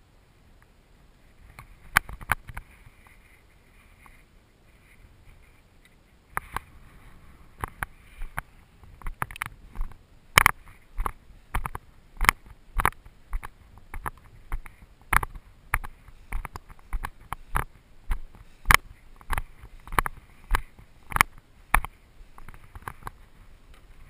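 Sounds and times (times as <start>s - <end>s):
footsteps through long grass: 6.5s - 24.0s.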